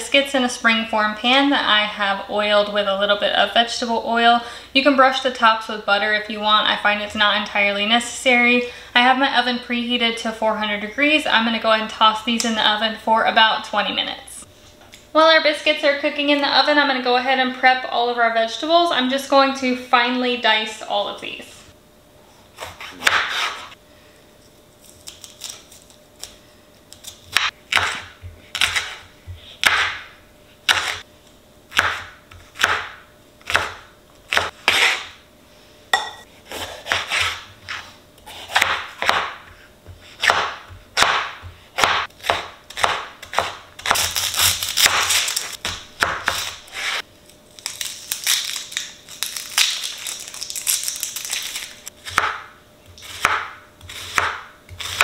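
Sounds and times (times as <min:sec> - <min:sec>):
knife chopping on cutting board: 0:22.6 - 0:23.7, 0:27.3 - 0:30.1, 0:30.7 - 0:31.0, 0:31.7 - 0:35.1, 0:36.0 - 0:47.0, 0:52.0 - 0:55.0.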